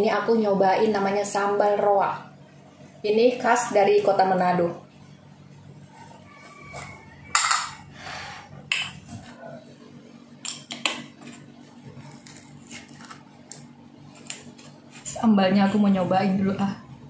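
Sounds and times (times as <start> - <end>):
spoon scraping tableware: 5.9 - 9.4.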